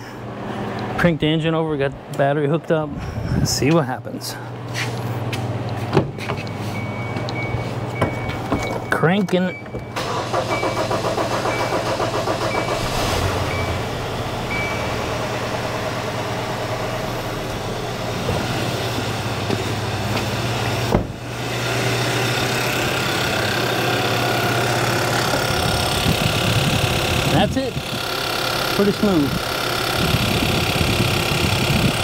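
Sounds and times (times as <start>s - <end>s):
car engine cranking and idling: 6.4s - 32.0s.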